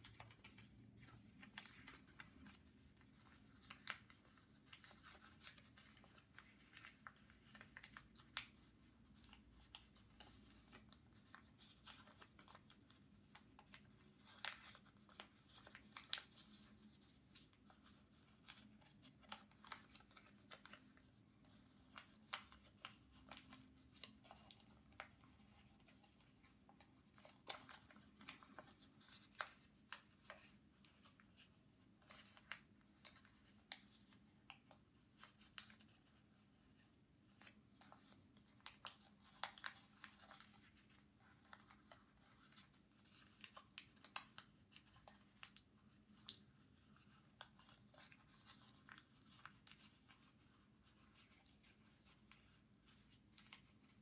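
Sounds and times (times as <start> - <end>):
paper being folded and creased: 0.0 - 54.0.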